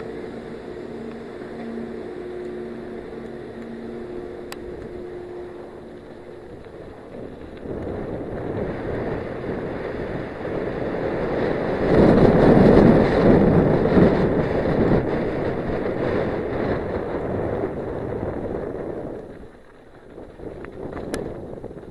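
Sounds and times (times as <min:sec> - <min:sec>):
tyres rumbling on loose dirt: 0:00.0 - 0:21.9
wind buffeting microphone: 0:00.0 - 0:21.9.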